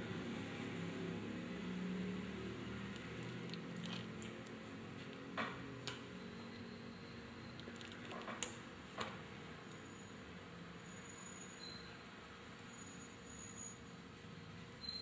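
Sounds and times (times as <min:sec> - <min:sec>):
fruit squelching and cracking: 0:02.7 - 0:05.3, 0:07.6 - 0:08.6.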